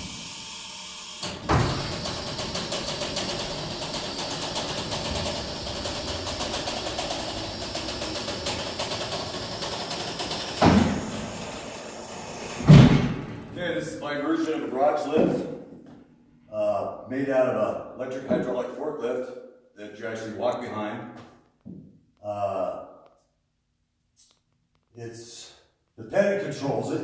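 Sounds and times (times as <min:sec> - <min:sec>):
lift motor running with flutter: 0:00.0 - 0:13.8
mechanical clunk: 0:01.2 - 0:11.7
platform thud: 0:12.6 - 0:13.7.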